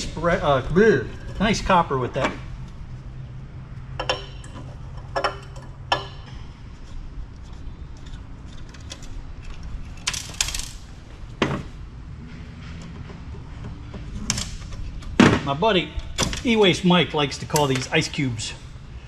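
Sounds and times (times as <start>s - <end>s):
metal tools clinking: 4.0s - 6.4s.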